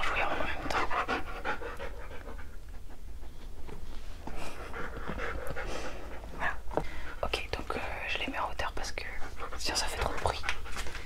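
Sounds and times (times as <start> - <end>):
dog panting: 0.0 - 7.8, 8.9 - 11.0.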